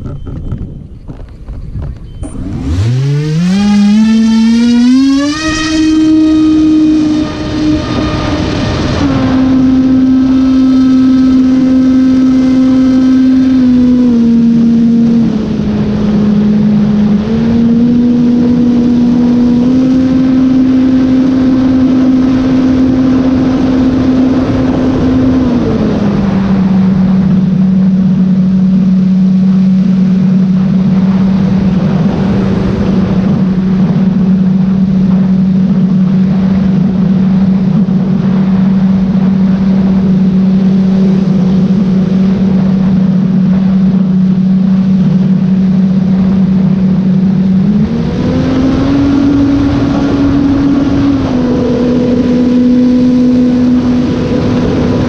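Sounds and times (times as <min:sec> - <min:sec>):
electric motor and propeller drone: 0:00.0 - 0:30.0.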